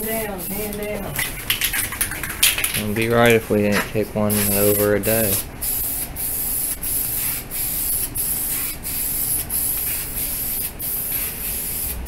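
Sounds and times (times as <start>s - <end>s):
aerosol spray can hissing: 4.3s - 12.0s.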